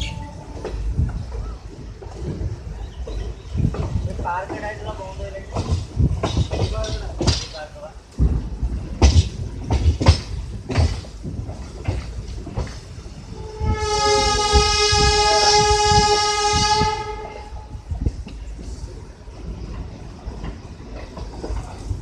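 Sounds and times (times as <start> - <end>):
train wheels clattering over rail joints: 0.4 - 22.0
locomotive horn two-note chord: 13.7 - 17.4.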